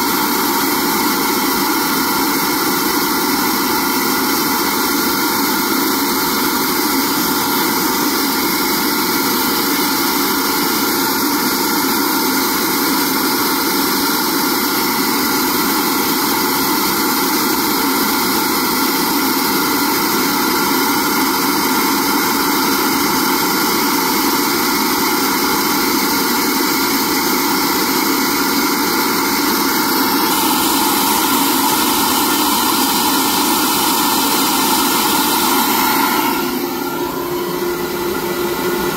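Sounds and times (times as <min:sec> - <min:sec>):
air flow bench rushing air: 0:28.4 - 0:38.9.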